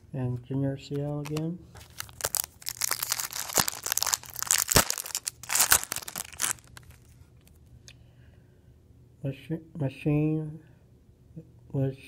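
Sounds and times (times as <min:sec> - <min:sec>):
foil wrapper tearing and crinkling: 0:01.2 - 0:07.0.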